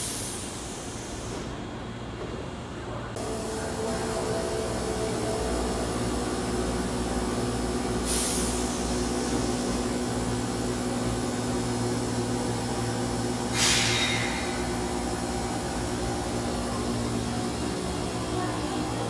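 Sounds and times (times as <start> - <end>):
air brake hisses: 0.0 - 1.4, 8.0 - 9.6, 13.4 - 14.8
train equipment humming: 0.0 - 19.0.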